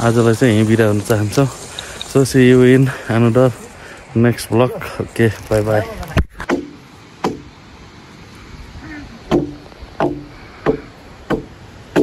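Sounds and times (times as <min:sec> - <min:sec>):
sharp hollow knocks: 0:06.2 - 0:07.5, 0:09.3 - 0:12.0.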